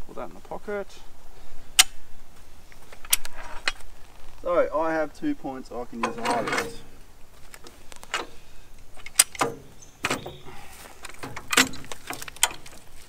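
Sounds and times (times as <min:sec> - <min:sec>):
jack mechanism clanking and clicking: 0:06.0 - 0:06.9, 0:07.5 - 0:13.0.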